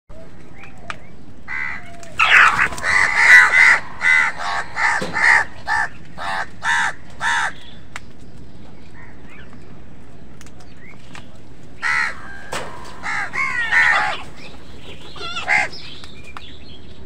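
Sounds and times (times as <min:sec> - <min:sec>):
crows cawing: 0:01.5 - 0:07.8, 0:11.8 - 0:16.0.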